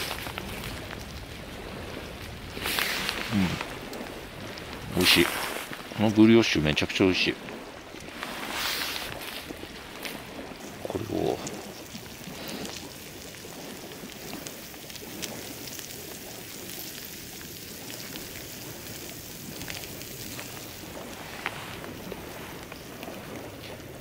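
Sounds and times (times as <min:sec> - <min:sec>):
cheese sizzling in a skillet: 0:10.5 - 0:22.9.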